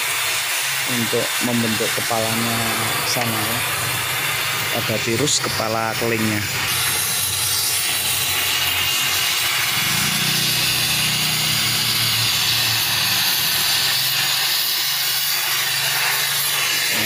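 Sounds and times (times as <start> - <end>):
gas torch flame hissing: 0.0 - 17.0.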